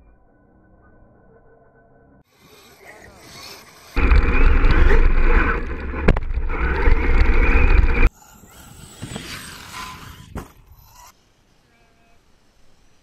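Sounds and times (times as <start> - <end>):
rc truck rumbling over grass: 2.4 - 11.1
wind buffeting camera: 3.9 - 11.1.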